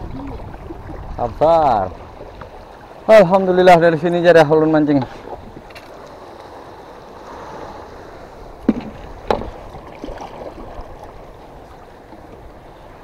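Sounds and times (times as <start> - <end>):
paddle sloshing in water: 0.0 - 13.0
sharp knocks: 8.6 - 9.6.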